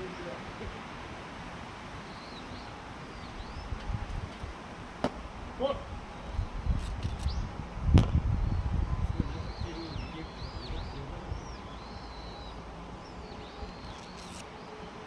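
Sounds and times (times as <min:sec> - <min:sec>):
wind rumbling on microphone: 0:00.5 - 0:12.1.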